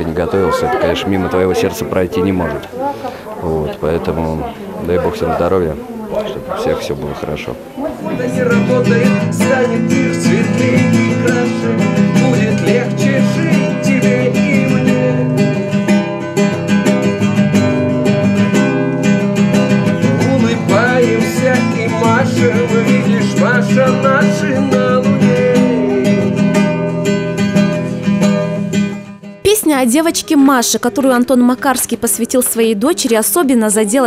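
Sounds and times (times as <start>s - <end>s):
acoustic guitar: 0.0s - 34.0s
man singing: 8.0s - 16.1s, 19.7s - 26.8s.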